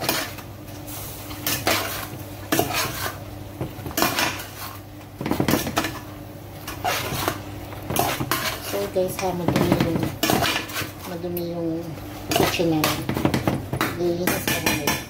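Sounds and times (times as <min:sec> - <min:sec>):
steady low hum: 0:00.0 - 0:15.0
metal utensil scraping frying pan: 0:01.4 - 0:03.2, 0:04.0 - 0:04.8, 0:05.5 - 0:11.2, 0:14.0 - 0:15.0.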